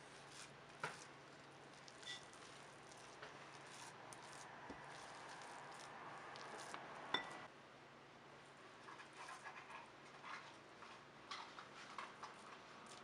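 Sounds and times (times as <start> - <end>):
spatula scraping ceramic bowl: 1.8 - 5.9.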